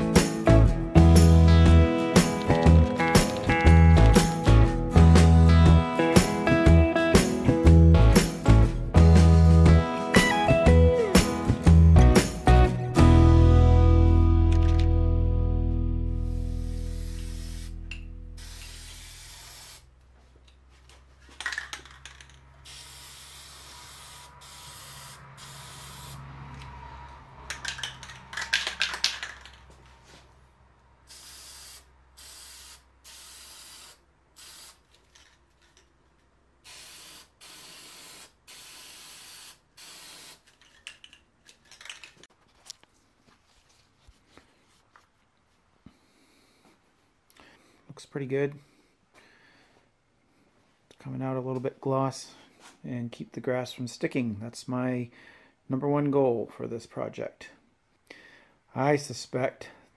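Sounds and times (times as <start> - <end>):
spray paint can hissing: 16.2 - 19.9, 21.8 - 26.2, 31.1 - 34.9, 36.6 - 40.5.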